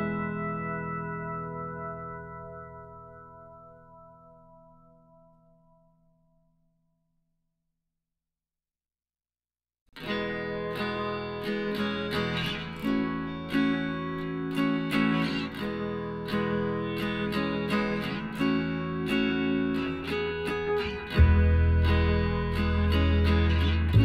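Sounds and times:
strummed guitar music: 0.0 - 5.6, 10.0 - 24.0.

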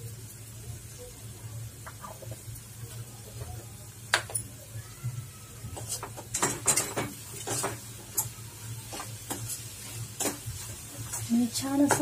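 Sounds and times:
spoon scraping and clinking in pan: 5.8 - 11.3.

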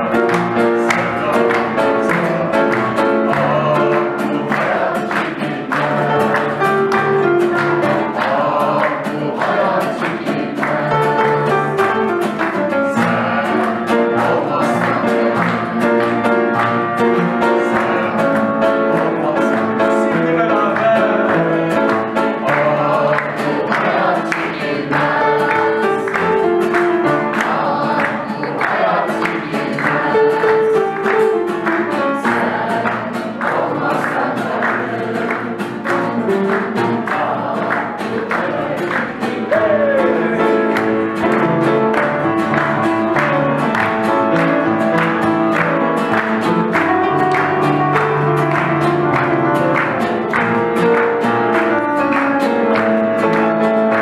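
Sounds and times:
person singing: 0.0 - 54.0
strummed acoustic guitar: 0.0 - 54.0
upright piano: 0.0 - 54.0.

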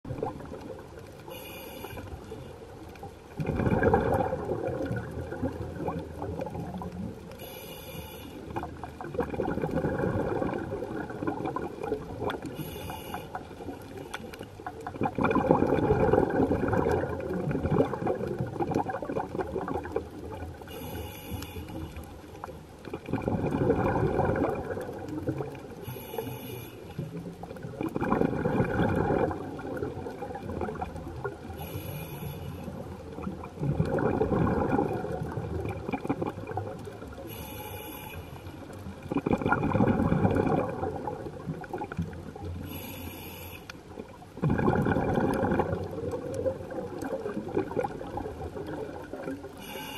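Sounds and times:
rumbling exhaled bubbles: 0.0 - 1.2, 2.8 - 7.3, 8.4 - 12.6, 13.3 - 20.7, 22.4 - 26.0, 27.0 - 31.8, 32.7 - 37.4, 38.6 - 42.8, 43.9 - 49.7
regulator hissing inhale: 1.3 - 2.5, 7.3 - 8.6, 12.5 - 14.4, 20.7 - 22.1, 25.8 - 27.1, 31.6 - 32.8, 37.2 - 38.7, 42.6 - 43.9, 49.6 - 49.9.

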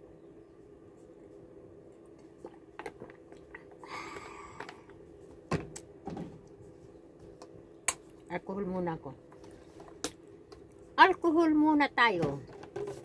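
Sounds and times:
faint steady hum: 0.0 - 13.0
breath out: 3.8 - 4.9.

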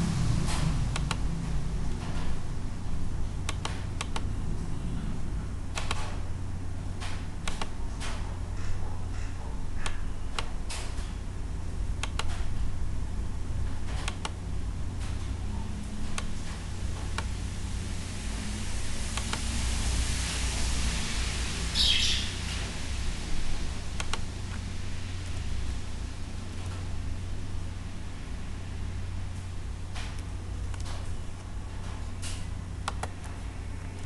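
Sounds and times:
steady low hum: 0.0 - 34.0
computer mouse clicks: 0.9 - 1.2, 3.5 - 4.3, 7.4 - 7.8, 9.8 - 10.5, 12.0 - 12.4, 14.0 - 14.4, 32.2 - 33.2.

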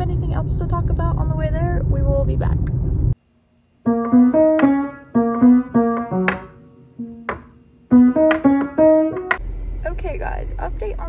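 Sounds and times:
piano played slowly: 3.8 - 9.4.

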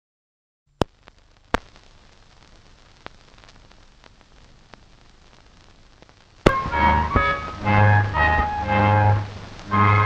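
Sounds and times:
sharp pops: 0.7 - 8.6
film soundtrack hiss: 0.7 - 10.0.

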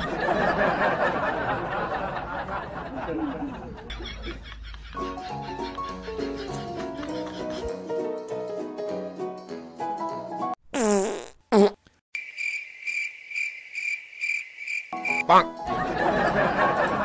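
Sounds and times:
people laughing: 0.0 - 7.8, 15.6 - 17.0
music: 5.0 - 10.6, 15.0 - 17.0
wet fart noises: 10.7 - 11.9
cricket chirp sound effect: 12.2 - 15.3.

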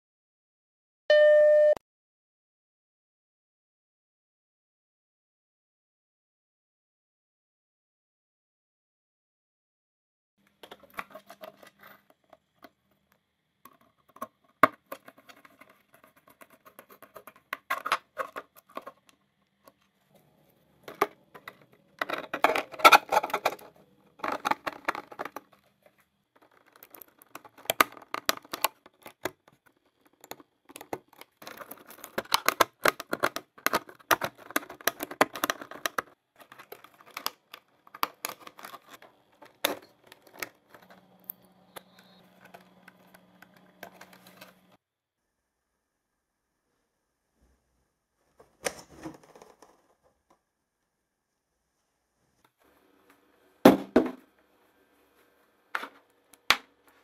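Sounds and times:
small hard objects clicking and rattling: 20.9 - 44.7.

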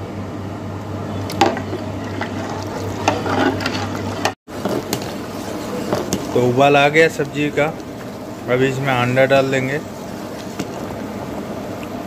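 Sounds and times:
steady low hum: 0.0 - 12.0
gravy bubbling in a pot: 1.0 - 12.0
ladle knocking and scraping: 1.4 - 8.2, 10.3 - 11.0.

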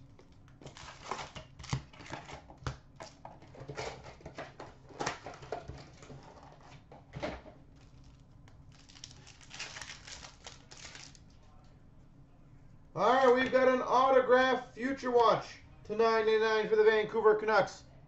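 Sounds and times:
foil packs rustling: 0.5 - 6.9, 7.7 - 11.3.

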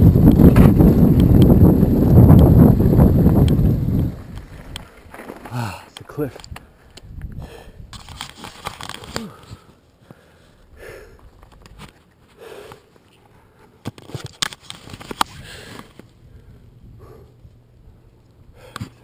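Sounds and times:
person breathing hard: 6.7 - 7.9, 9.2 - 11.3, 12.3 - 13.8.

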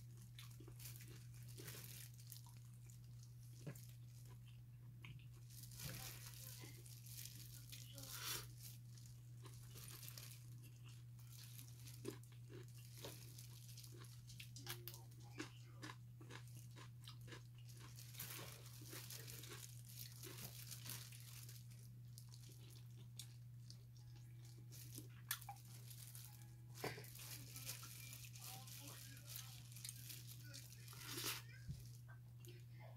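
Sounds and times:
plastic gloves crinkling: 0.0 - 4.5, 5.2 - 15.0, 17.6 - 32.1
chewing and mouth sounds: 0.0 - 8.4, 9.4 - 26.2.

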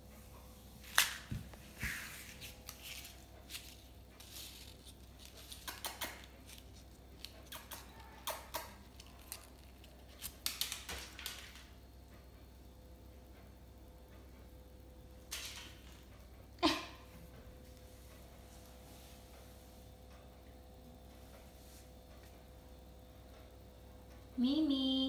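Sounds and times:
paper crinkling: 0.8 - 8.1, 8.8 - 11.6.

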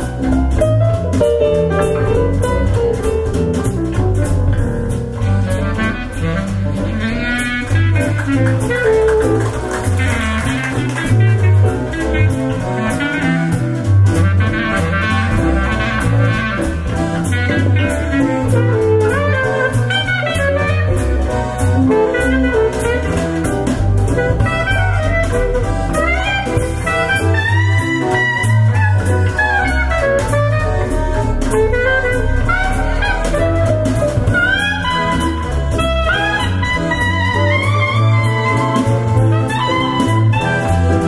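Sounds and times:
jazz lead melody: 0.0 - 41.0
pulsing bass: 0.0 - 41.0.

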